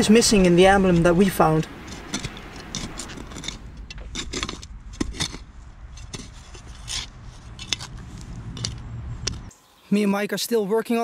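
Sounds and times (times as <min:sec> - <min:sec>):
spade digging stony soil: 0:01.7 - 0:09.5.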